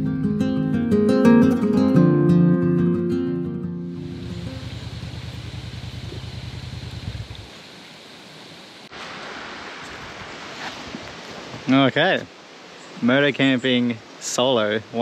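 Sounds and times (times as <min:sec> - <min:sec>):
motorcycle engine running: 0:03.9 - 0:08.0
breeze hiss: 0:04.0 - 0:15.0.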